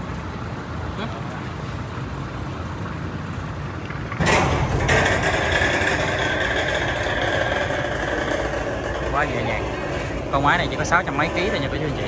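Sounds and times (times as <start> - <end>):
engine running: 4.0 - 12.0.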